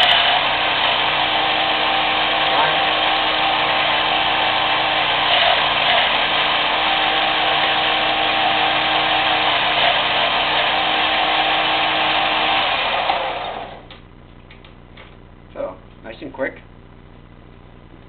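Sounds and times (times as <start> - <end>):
belt sander running: 0.0 - 14.0.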